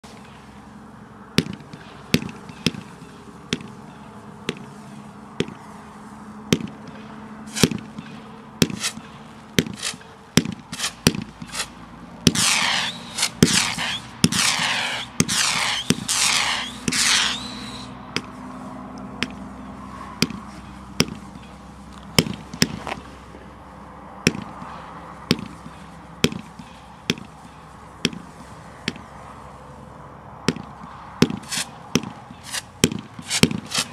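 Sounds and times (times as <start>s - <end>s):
firework cake firing shots: 7.5s - 7.8s, 8.6s - 11.7s, 12.3s - 17.8s.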